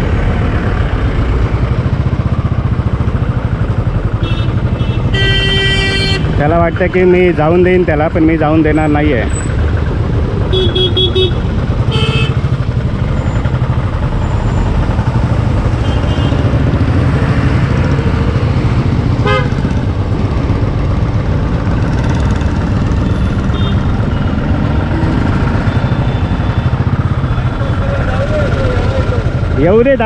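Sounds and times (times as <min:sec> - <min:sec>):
motorcycle engine running: 0:00.0 - 0:30.0
traffic: 0:00.0 - 0:30.0
vehicle horn toots: 0:04.2 - 0:06.4, 0:10.5 - 0:12.5, 0:15.8 - 0:16.5, 0:19.2 - 0:19.6, 0:23.4 - 0:23.9.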